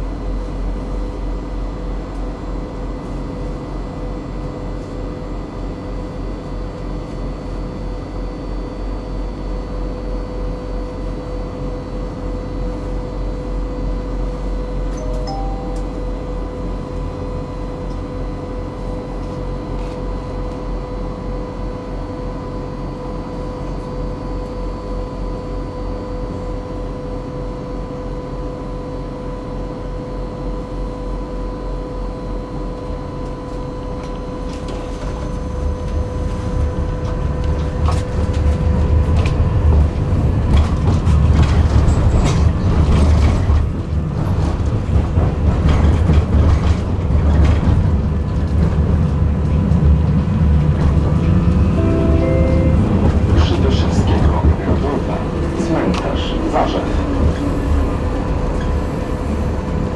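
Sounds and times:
tram motors and wheels rumbling: 0.0 - 59.9
electrical hum: 48.9 - 59.9.

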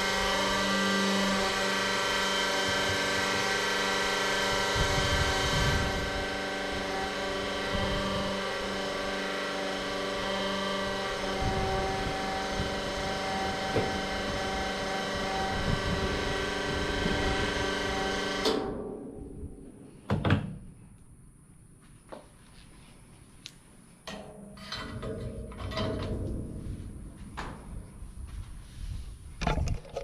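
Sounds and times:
electric fuel pump running: 0.0 - 18.8.

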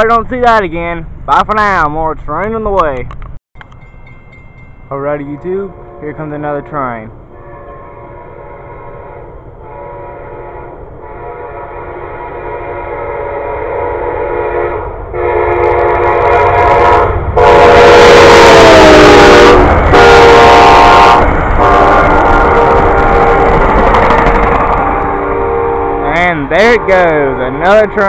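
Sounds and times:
train cars passing on rails: 0.0 - 28.0
train horn blasts: 5.2 - 6.7, 7.3 - 28.0.

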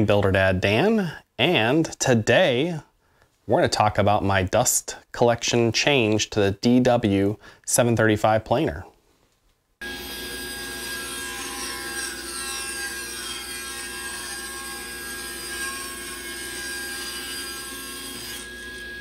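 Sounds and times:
table saw whine: 9.8 - 19.0.

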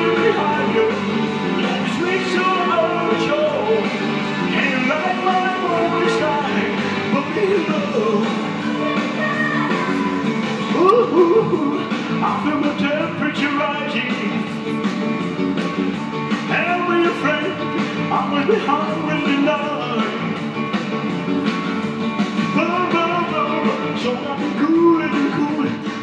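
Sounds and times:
rock and roll song: 0.0 - 26.0.

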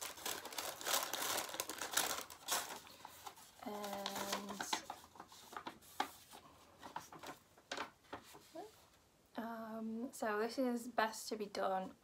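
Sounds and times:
paper and packaging rustling: 0.0 - 9.0.

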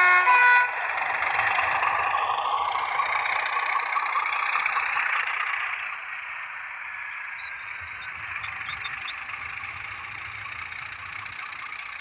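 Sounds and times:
diesel engine sound through speaker: 0.0 - 12.0
model train wheels rolling on track: 0.8 - 6.2.

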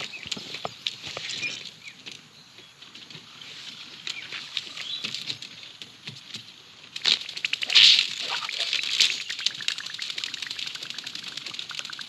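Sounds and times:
light clicks and rustles: 0.0 - 7.4.

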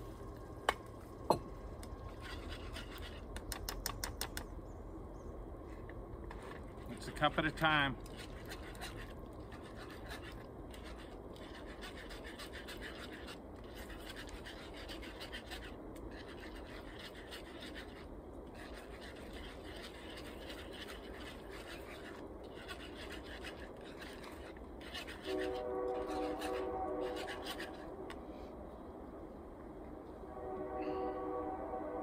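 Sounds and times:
utensil scraping in a skillet: 2.0 - 3.5, 6.3 - 28.2.

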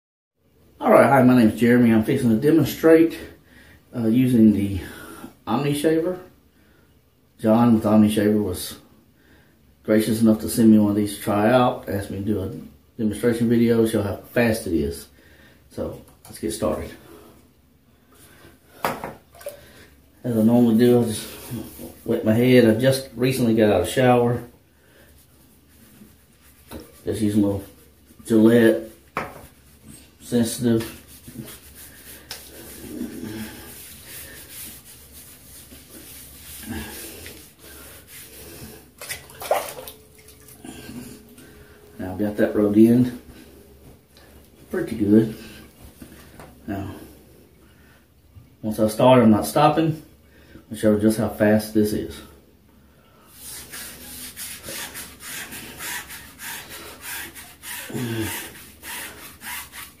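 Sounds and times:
hands rubbing lather on scalp: 25.1 - 40.5.

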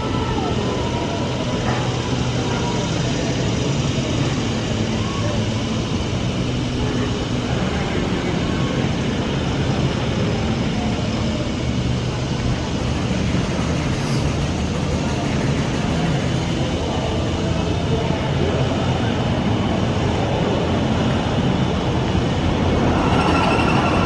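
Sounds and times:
low mechanical hum: 0.0 - 24.0.

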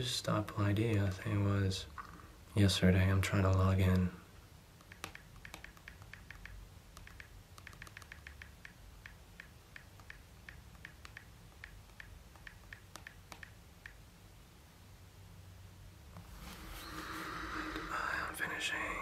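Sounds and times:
touchscreen keyboard clicks: 4.8 - 14.0.

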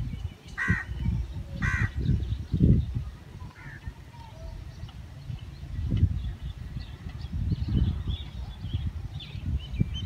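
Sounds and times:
wind rumble on microphone: 0.0 - 10.0
crow cawing: 1.6 - 1.9.

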